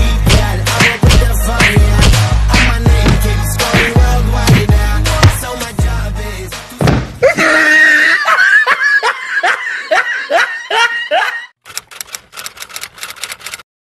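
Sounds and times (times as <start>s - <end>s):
person laughing: 7.2s - 11.6s.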